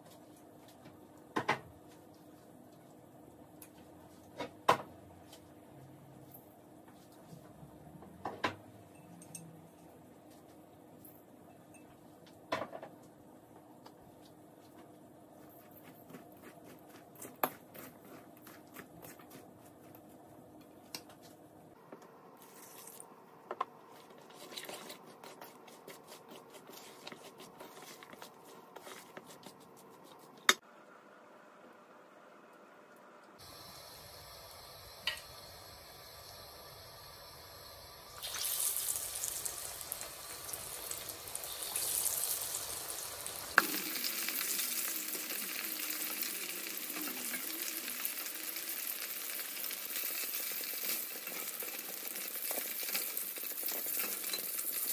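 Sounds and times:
faint steady hum: 0.0s - 49.5s.

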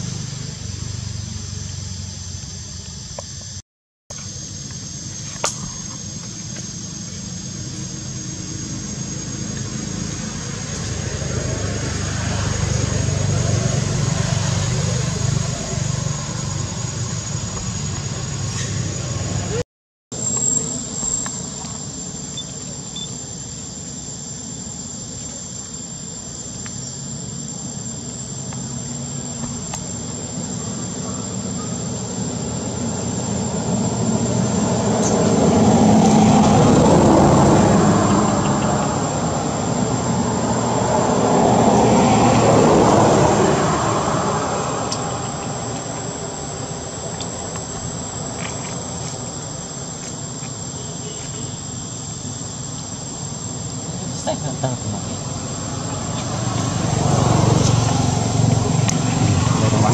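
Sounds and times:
vehicle engine passing: 0.0s - 2.9s, 7.2s - 19.6s, 30.3s - 49.1s, 54.0s - 59.9s
insects droning: 0.0s - 59.9s.

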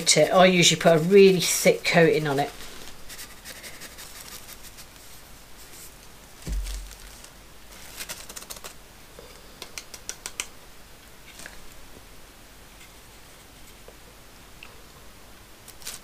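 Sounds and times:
dull thump: 6.4s - 7.2s
plastic bag crinkling: 6.4s - 8.8s, 15.7s - 16.0s.

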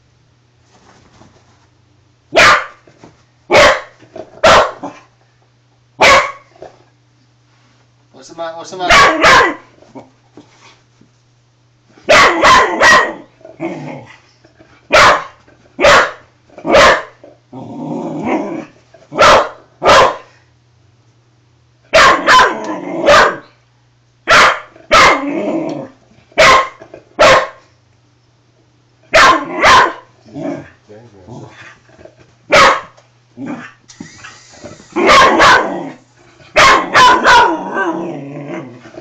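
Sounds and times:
dog barking: 2.3s - 2.8s, 3.5s - 5.0s, 6.0s - 6.5s, 8.9s - 9.7s, 12.1s - 13.3s, 14.9s - 17.2s, 19.1s - 20.3s, 21.9s - 23.5s, 24.3s - 25.3s, 26.4s - 27.6s, 29.1s - 30.1s, 32.5s - 33.0s, 35.0s - 38.0s
dog growling: 13.1s - 14.2s, 17.2s - 18.8s, 22.5s - 23.2s, 25.2s - 26.0s, 30.2s - 32.2s, 33.4s - 39.0s.

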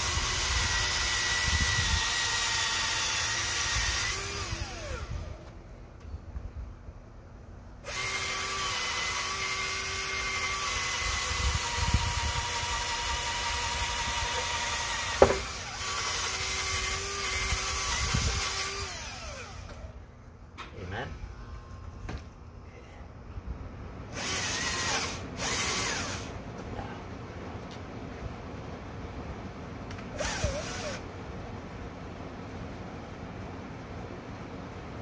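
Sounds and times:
power drill boring through wood: 0.0s - 5.4s, 7.8s - 19.9s, 24.1s - 26.4s, 30.2s - 31.0s
sharp knock: 15.2s - 15.5s.

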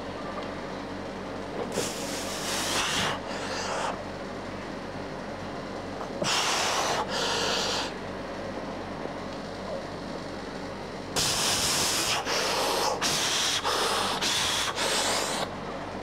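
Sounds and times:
steady low hum: 0.0s - 16.0s
person breathing hard: 1.8s - 4.0s, 6.2s - 8.0s, 11.2s - 15.5s.

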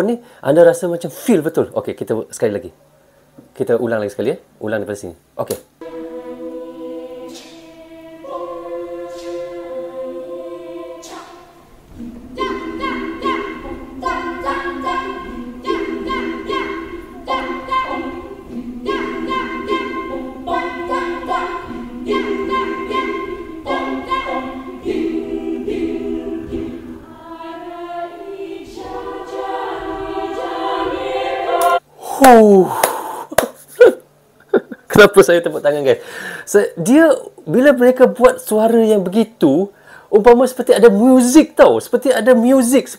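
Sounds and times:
a cappella choir singing: 5.8s - 31.9s
hand claps: 31.6s - 33.6s.

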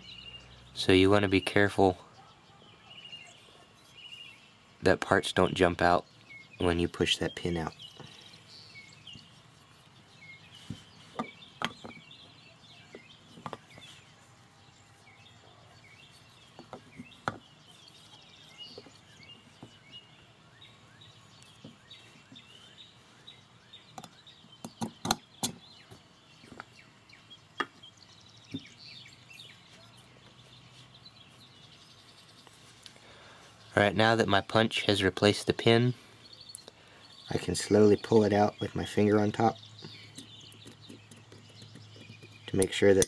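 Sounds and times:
birds chirping: 0.0s - 43.0s.

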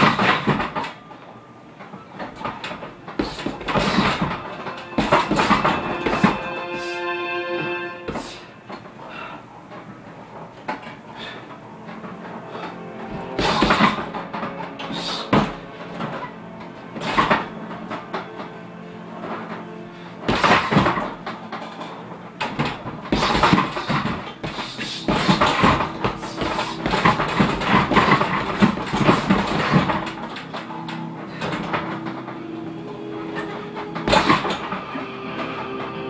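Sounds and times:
punches and kicks on heavy bag: 22.7s - 30.1s.

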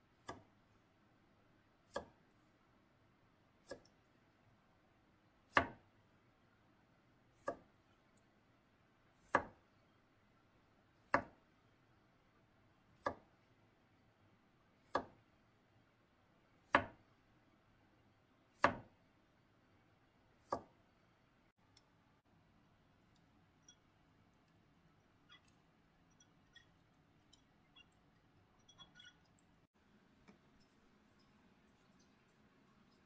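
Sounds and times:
knife chopping on plastic board: 13.0s - 13.3s, 14.8s - 15.2s, 16.7s - 17.0s, 18.6s - 18.9s, 20.4s - 20.7s.

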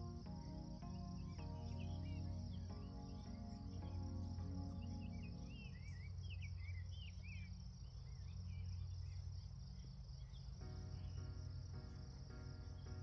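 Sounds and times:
soft background music chords: 0.0s - 6.7s, 10.6s - 13.0s
songbird warbling: 0.0s - 7.5s.

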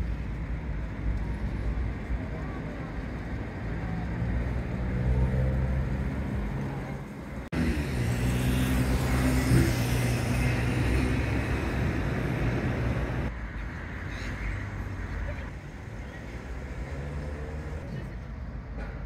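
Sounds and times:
vehicle engine humming: 0.0s - 13.4s
outdoor street noise: 0.0s - 19.0s.

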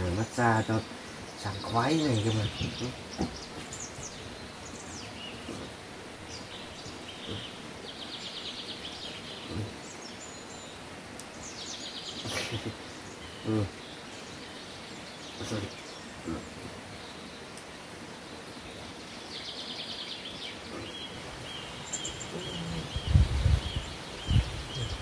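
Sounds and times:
bird chirps: 0.0s - 10.8s, 19.2s - 25.0s
rapid pulsed bird trills: 19.4s - 25.0s
short low voice-like sound: 24.7s - 25.0s.

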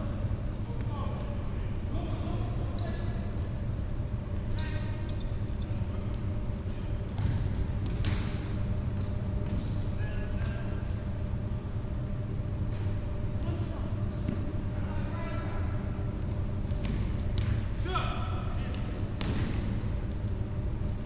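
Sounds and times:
shoes squeaking on floor: 2.7s - 7.2s
ball kicked and bouncing: 7.0s - 9.8s, 16.2s - 17.7s.

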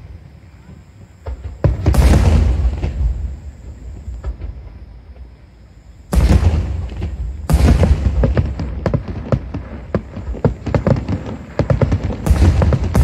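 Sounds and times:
firework shells booming: 1.1s - 5.4s, 6.1s - 13.0s
quick sharp firework bangs and pops: 6.2s - 13.0s.

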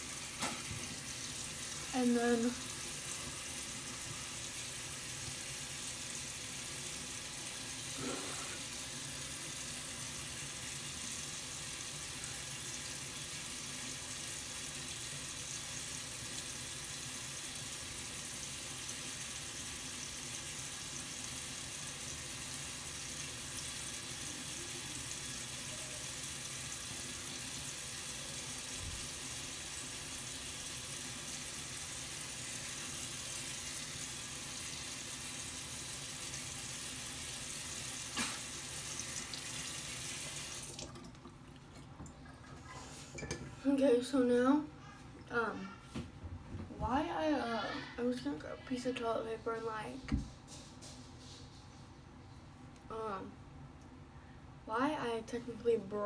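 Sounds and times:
water running from sink tap: 0.0s - 44.3s.

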